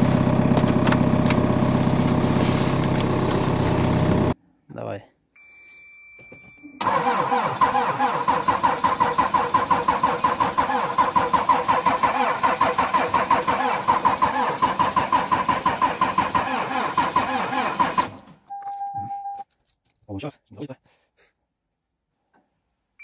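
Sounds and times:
diesel engine cranking over: 0:00.0 - 0:04.4, 0:06.8 - 0:18.3.

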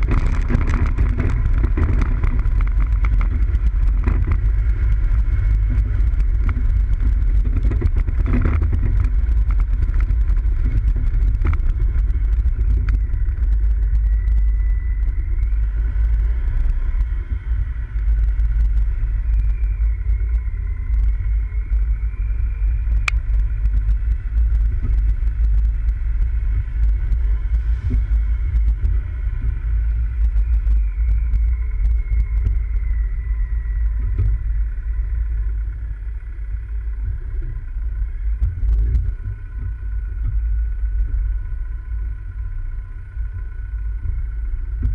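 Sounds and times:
off-road vehicle rumbling: 0:00.0 - 0:44.9.

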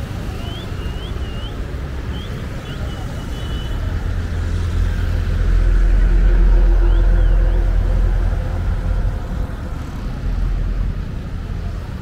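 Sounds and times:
street rumble: 0:00.0 - 0:12.0
vehicle engine passing by: 0:02.9 - 0:12.0.

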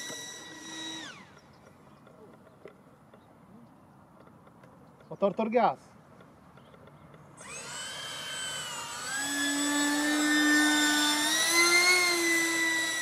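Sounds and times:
model jet whine: 0:00.0 - 0:01.6, 0:07.4 - 0:13.0.

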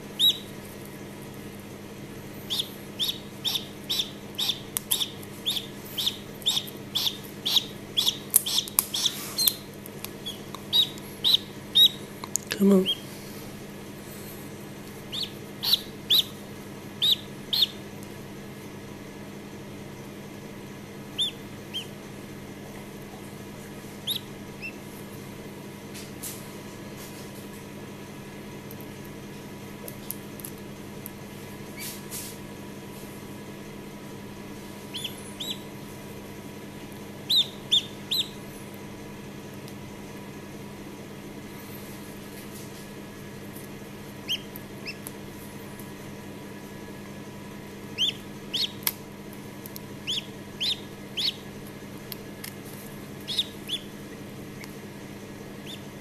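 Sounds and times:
duckling peeping: 0:00.1 - 0:00.6, 0:02.4 - 0:12.2, 0:12.8 - 0:13.1, 0:15.0 - 0:16.4, 0:17.0 - 0:17.9, 0:21.1 - 0:22.0, 0:24.0 - 0:24.9, 0:34.8 - 0:35.8, 0:37.2 - 0:38.5, 0:44.2 - 0:45.2, 0:47.9 - 0:48.9, 0:50.0 - 0:51.6, 0:53.1 - 0:54.8, 0:55.5 - 0:56.0
eggshell clicks: 0:02.5 - 0:12.5.

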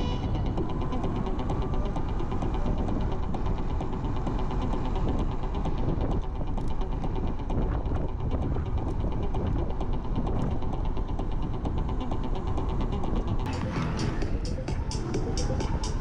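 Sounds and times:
road rumble: 0:00.0 - 0:16.0
wind buffeting camera: 0:00.0 - 0:16.0.

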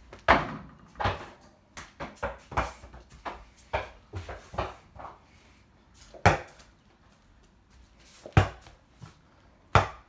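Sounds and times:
rubber ball bouncing: 0:09.7 - 0:10.0.

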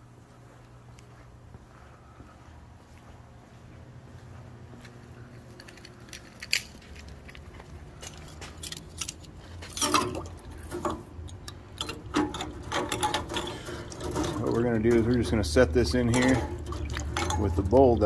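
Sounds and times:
steady low hum: 0:00.0 - 0:18.0
metal parts clinking and rattling: 0:05.6 - 0:18.0.

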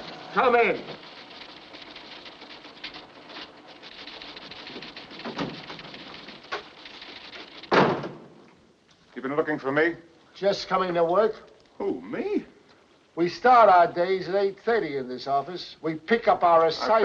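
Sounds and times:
typewriters clacking: 0:00.0 - 0:07.9
steady hiss: 0:00.0 - 0:17.0
short thump: 0:07.7 - 0:08.4.

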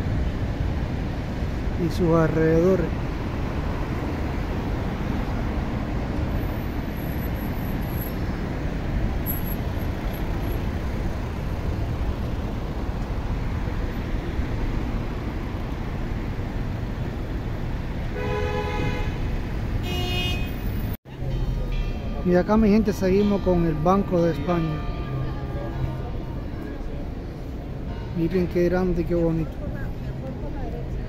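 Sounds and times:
city traffic rumble: 0:00.0 - 0:31.0
car horn: 0:18.1 - 0:20.9.

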